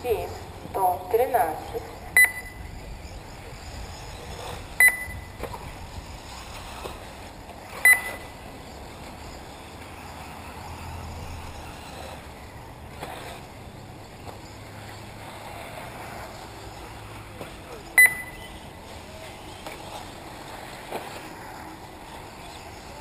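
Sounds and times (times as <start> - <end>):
rc buggies whining and rustling: 0.0 - 23.0
short high electronic beep: 2.2 - 2.6, 4.8 - 5.3, 7.8 - 8.3, 18.0 - 18.5.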